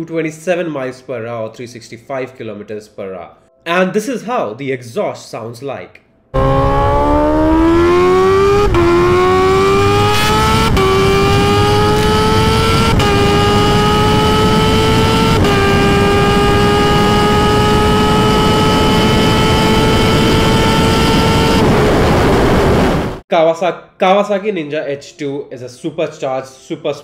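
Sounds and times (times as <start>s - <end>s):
motorcycle engine accelerating: 6.4s - 23.2s
wind rush: 9.7s - 23.2s.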